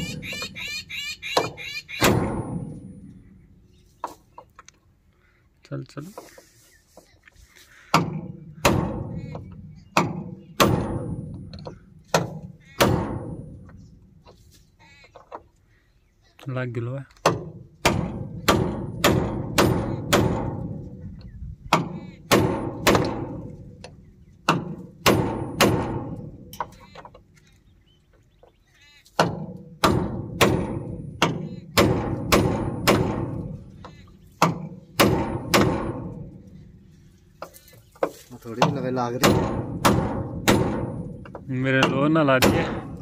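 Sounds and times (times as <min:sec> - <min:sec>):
hammer striking steel drift: 0:02.0 - 0:03.2, 0:29.3 - 0:33.7, 0:34.4 - 0:36.4, 0:39.2 - 0:43.0.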